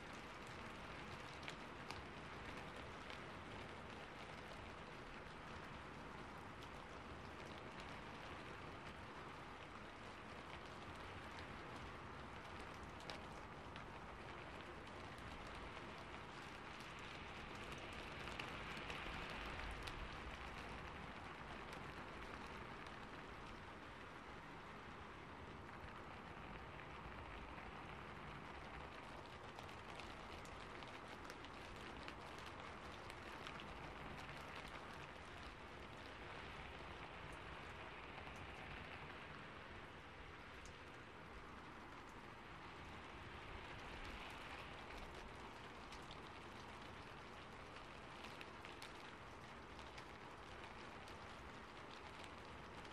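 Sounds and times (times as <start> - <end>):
rain on a roof: 0.0 - 52.9.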